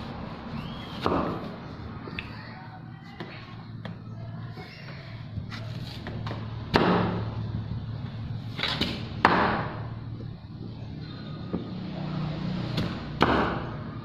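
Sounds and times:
cleaver chopping on wooden block: 1.0 - 1.4, 6.7 - 7.2, 8.6 - 9.8, 12.8 - 13.6.

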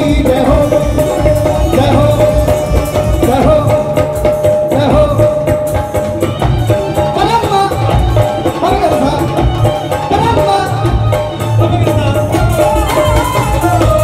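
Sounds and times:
hand drums beating: 0.0 - 14.0.

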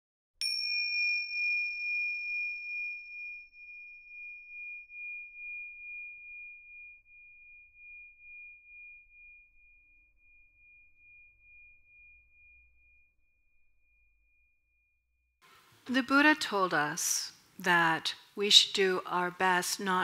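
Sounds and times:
metal bell ringing: 0.4 - 9.1.

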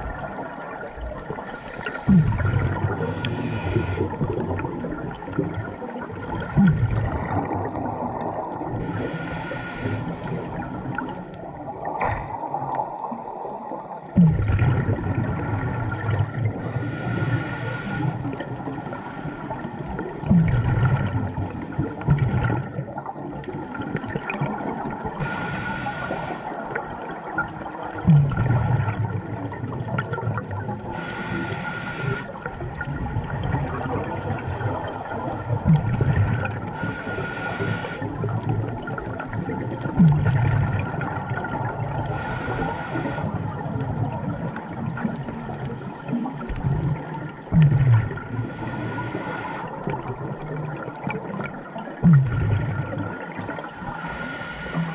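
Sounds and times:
rush of exhaled bubbles: 0.0 - 54.1
hissing regulator inhale: 1.5 - 4.3, 8.8 - 10.8, 16.6 - 20.0, 25.2 - 26.6, 30.8 - 32.4, 34.2 - 35.6, 36.7 - 38.1, 42.0 - 43.4, 48.3 - 49.9, 53.2 - 54.9.

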